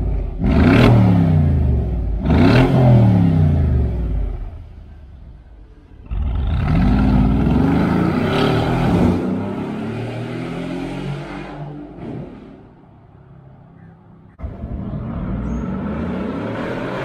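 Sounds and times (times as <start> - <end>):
car engine accelerating: 14.4 - 17.0.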